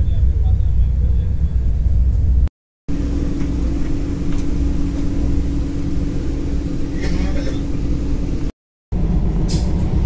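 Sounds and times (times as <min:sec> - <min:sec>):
train coach low rumble: 0:00.0 - 0:10.0
steady hum: 0:01.4 - 0:08.5.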